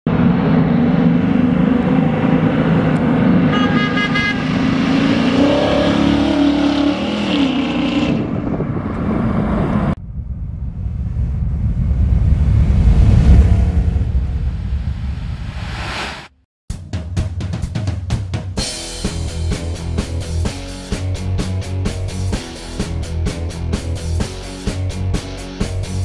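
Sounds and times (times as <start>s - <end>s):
low rumble: 8.2s - 16.4s
car exhaust driving past: 10.0s - 16.1s.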